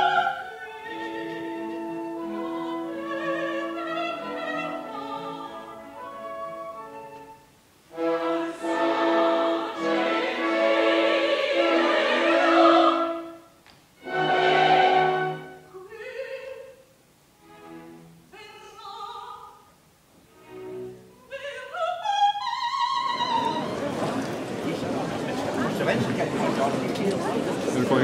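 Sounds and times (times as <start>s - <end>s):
opera singers with orchestra: 0.0s - 16.9s, 18.3s - 19.7s, 20.6s - 24.1s.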